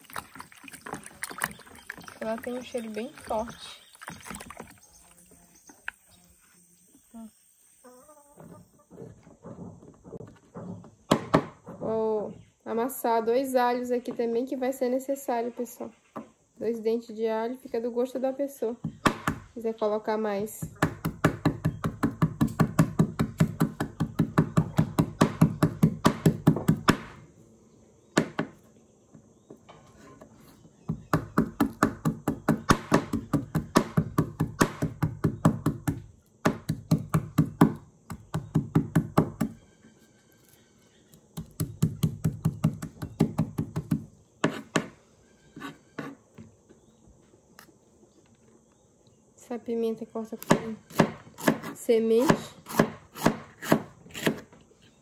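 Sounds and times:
knife chopping on plastic board: 50.4 - 54.5.

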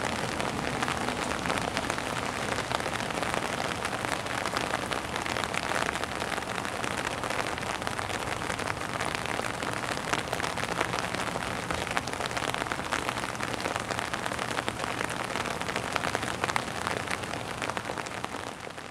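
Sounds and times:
heavy rain on wet surface: 0.0 - 18.9
raindrops splashing: 0.0 - 18.9.

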